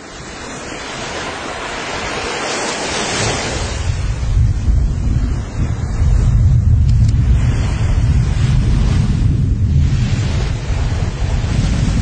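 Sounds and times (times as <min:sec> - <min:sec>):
volcano rushing noise: 0:00.0 - 0:12.0
deep volcanic rumble: 0:03.6 - 0:12.0.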